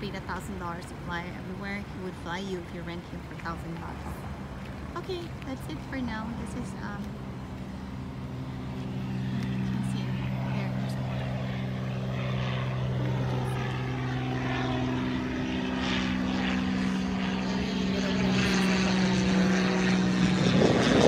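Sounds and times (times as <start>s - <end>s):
propeller airplane engine drone: 0.0s - 21.0s.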